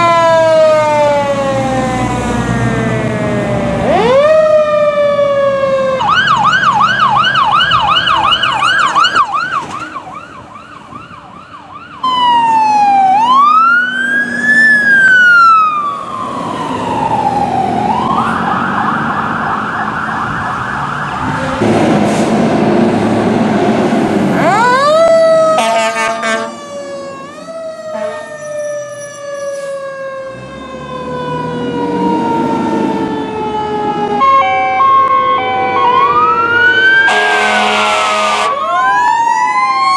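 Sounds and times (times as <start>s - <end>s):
fire truck sirens: 0.0s - 39.9s
horn blasts: 25.6s - 26.6s, 27.9s - 28.3s, 37.1s - 38.6s.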